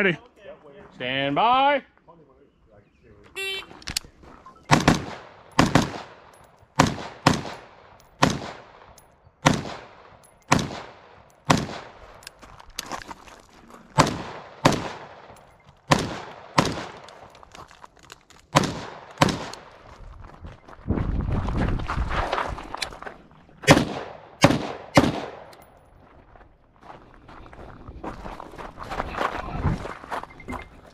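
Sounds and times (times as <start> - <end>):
gunshots: 4.7 - 12.0, 14.0 - 17.2, 18.5 - 19.7, 23.6 - 25.5.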